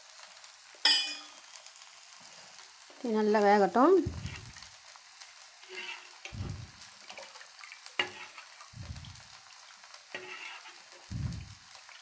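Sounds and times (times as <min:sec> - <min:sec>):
oil sizzling on griddle: 0:00.0 - 0:12.0
soft low thumps: 0:04.0 - 0:04.6, 0:06.3 - 0:06.8, 0:08.8 - 0:09.3, 0:11.1 - 0:11.6.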